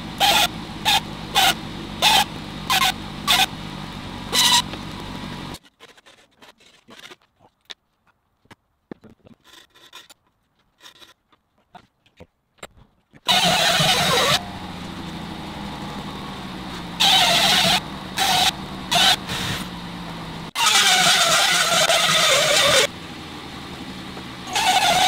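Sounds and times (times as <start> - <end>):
rotary tool grinding metal: 13.3 - 15.1, 16.7 - 19.7, 20.5 - 22.9, 24.5 - 25.0.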